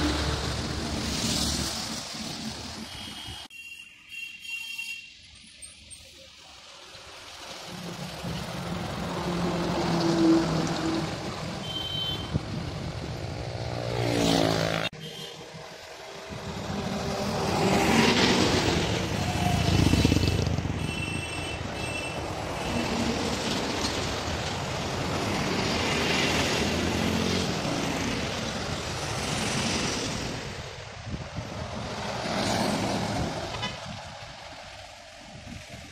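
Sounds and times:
diesel trucks passing: 0.0 - 2.9, 5.3 - 35.9
steady traffic: 0.0 - 35.9.

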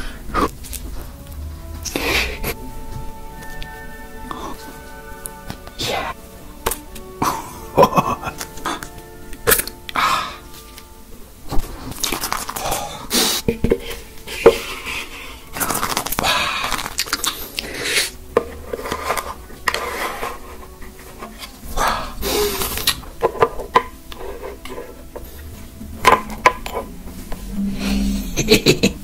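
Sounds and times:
crunchy eating bursts: 11.6 - 18.2
tableware clicks and scrapes: 17.9 - 21.6, 22.6 - 25.4.

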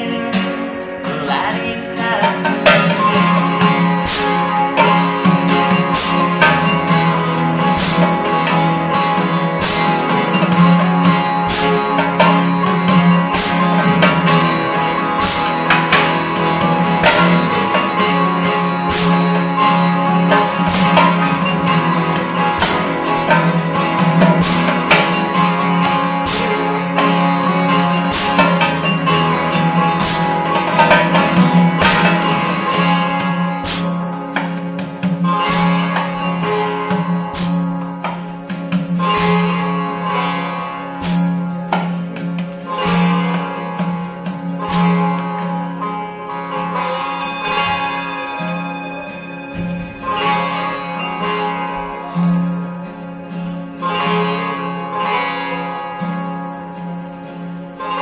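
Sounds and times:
acoustic band playing: 0.0 - 58.0
acoustic guitar strumming: 0.0 - 58.0
hand percussion accents: 0.0 - 58.0.

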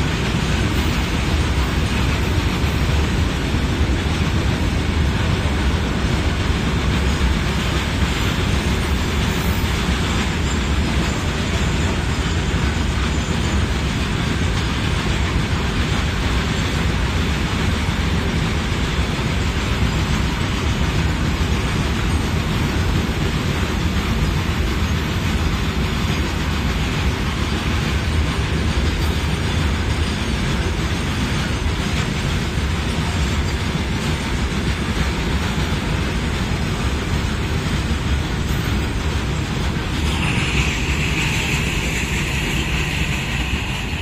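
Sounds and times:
train wheels rumbling on rails: 0.0 - 44.0
high steady whine: 32.4 - 44.0.

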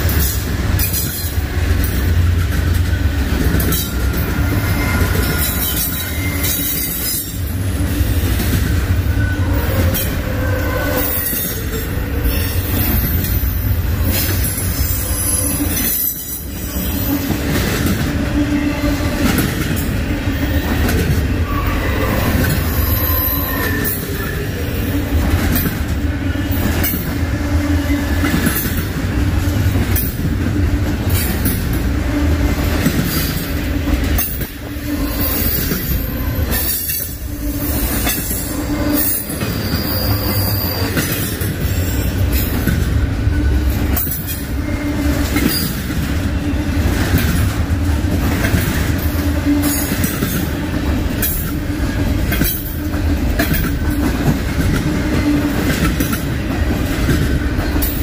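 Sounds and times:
train cars rumbling: 0.0 - 58.0
high-pitched wheel squeal: 3.7 - 7.4, 14.5 - 17.3, 21.4 - 24.4, 34.8 - 42.1.

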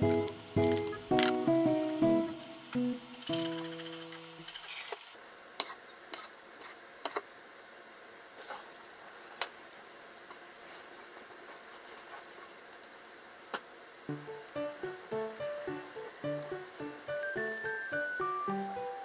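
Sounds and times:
plucked guitar music: 0.0 - 4.4, 14.1 - 19.0.

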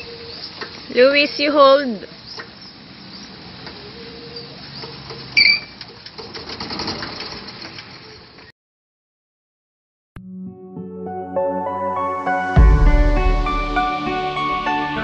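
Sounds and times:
golf cart rolling over grass: 4.5 - 8.5.

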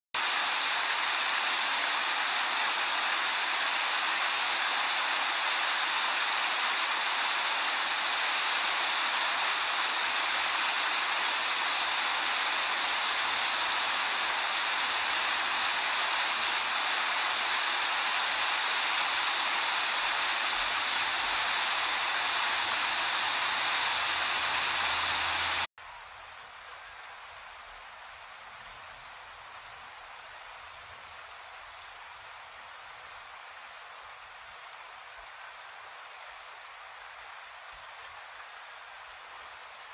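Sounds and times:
river water rushing over waterfall: 0.2 - 39.9.

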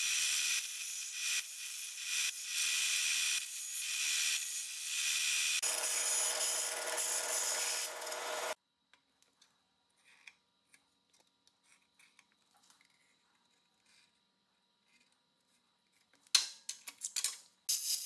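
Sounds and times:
bandsaw cutting metal: 0.0 - 8.6.

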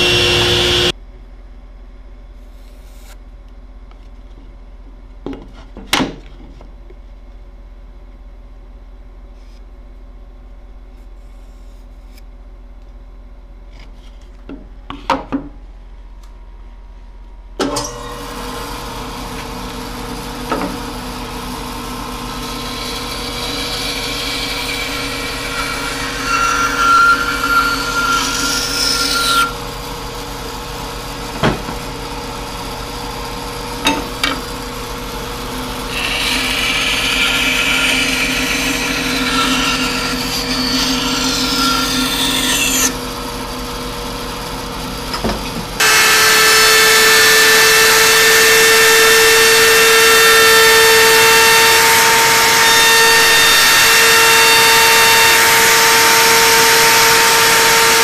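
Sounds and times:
band saw cutting plywood: 0.0 - 0.9, 18.0 - 43.2, 45.4 - 58.0
band saw humming: 0.0 - 1.0, 17.8 - 58.0
router high whine: 0.0 - 1.0, 17.6 - 58.0.

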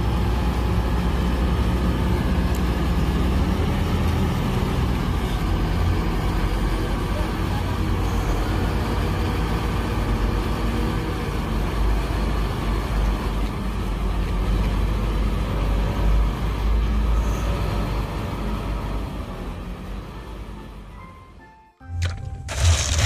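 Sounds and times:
crane diesel engine rumbling: 0.0 - 23.0.

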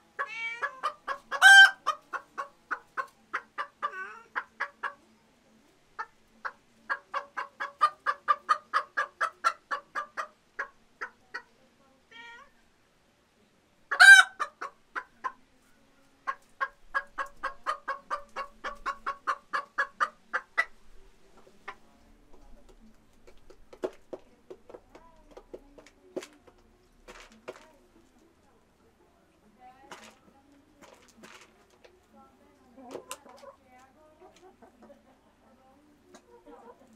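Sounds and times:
hen clucking: 0.2 - 5.2, 6.0 - 11.5, 13.9 - 15.5, 16.2 - 28.2, 32.8 - 36.9.

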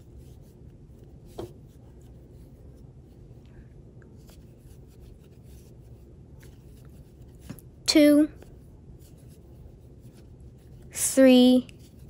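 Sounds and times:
steady low hum: 0.0 - 12.0.

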